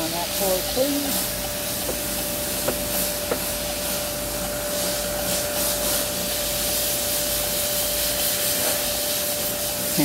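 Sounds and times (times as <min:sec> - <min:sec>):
high machinery whine: 0:00.0 - 0:10.0.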